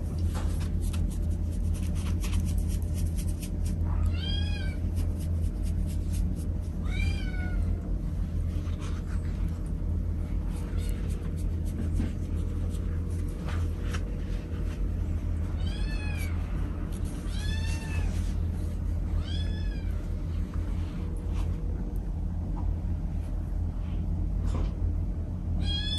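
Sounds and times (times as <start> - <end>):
steady low rumble: 0.0 - 25.8
cat meowing: 3.9 - 4.8, 6.8 - 7.8, 15.5 - 16.4, 17.2 - 18.2, 19.2 - 20.0, 25.6 - 25.9.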